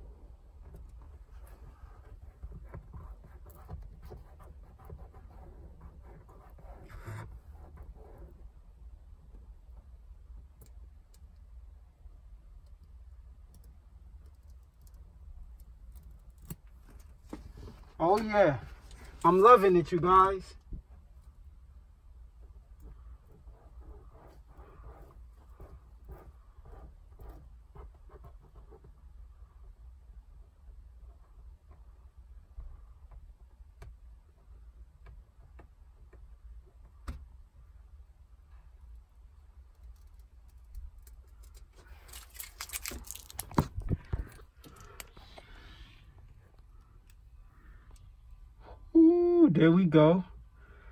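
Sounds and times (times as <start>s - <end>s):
low steady rumble: 0.0s - 50.9s
light clicks and handling noises: 12.5s - 21.5s, 38.4s - 48.5s.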